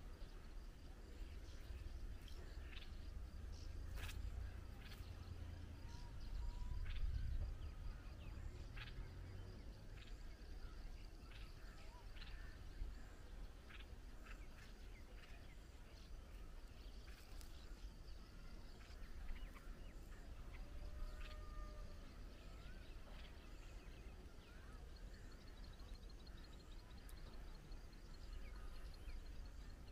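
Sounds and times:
wind rumble on microphone: 0:00.0 - 0:24.3
bird chirps: 0:00.0 - 0:29.9.

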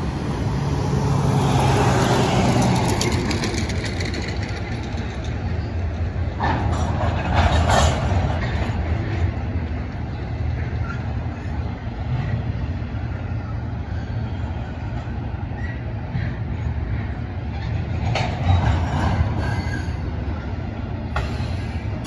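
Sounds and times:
freight train rumbling: 0:00.0 - 0:22.0
faint train squeals: 0:10.0 - 0:22.0.

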